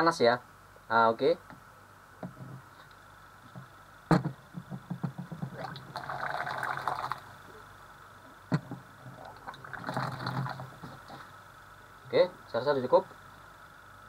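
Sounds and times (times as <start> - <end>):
plastic jug knocking and clicking: 4.1 - 5.7
water pouring and splashing: 9.3 - 10.8.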